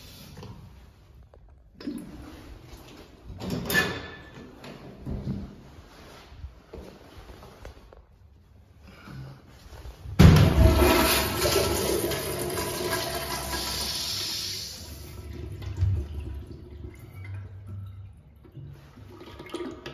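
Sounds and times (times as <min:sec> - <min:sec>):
urinal flushing water rush: 0:10.4 - 0:19.9.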